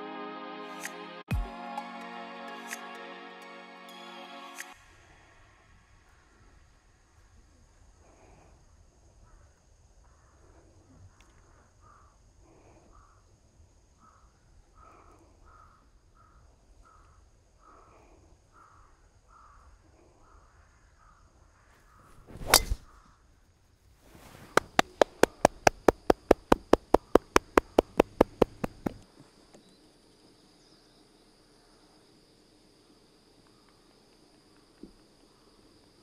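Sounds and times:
golf club whoosh and ball crack: 22.1s - 22.9s, 24.1s - 29.0s
run of sharp clicks: 24.2s - 29.0s.

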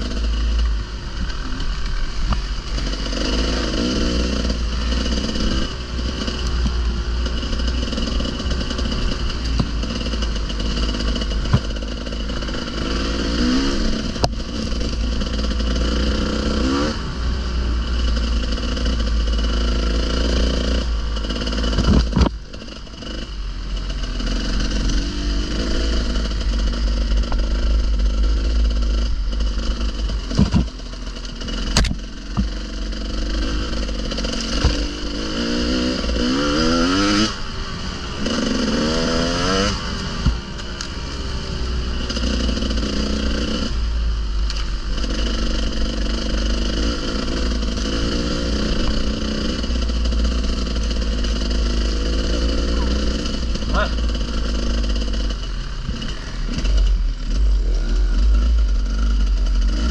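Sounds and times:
motorcycle engine revving: 0.0s - 59.9s
sharp knocks and clatter: 9.3s - 12.2s, 28.9s - 32.6s.

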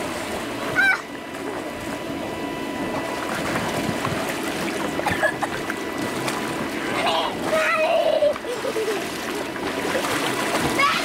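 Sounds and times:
faint steady whine: 0.0s - 11.0s
child shouting: 0.8s - 1.1s, 10.8s - 11.0s.

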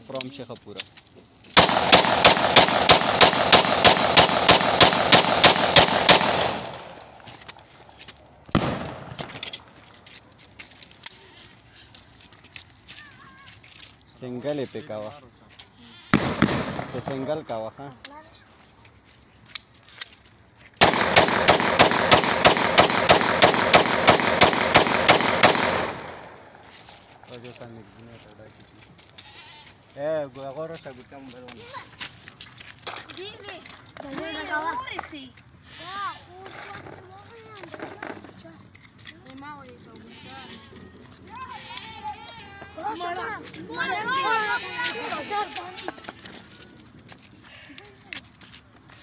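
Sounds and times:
pistol shots: 1.6s - 7.2s, 8.5s - 9.4s, 16.1s - 17.4s, 20.8s - 26.6s.

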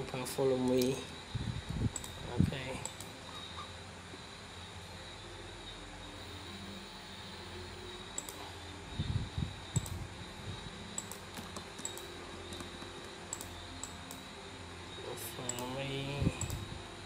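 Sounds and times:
steady background hiss: 0.0s - 17.0s
mouse and keyboard clicks: 11.0s - 14.2s.

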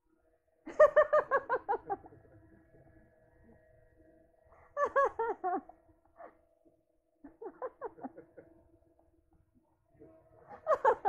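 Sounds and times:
voices and laughter: 0.7s - 2.9s, 4.6s - 6.5s, 7.2s - 9.0s, 10.4s - 11.0s.

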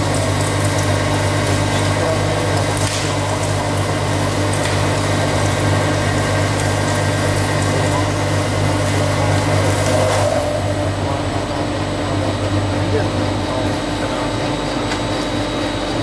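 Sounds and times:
low machine hum: 0.0s - 16.0s
metal milling cutting noise: 0.0s - 16.0s.

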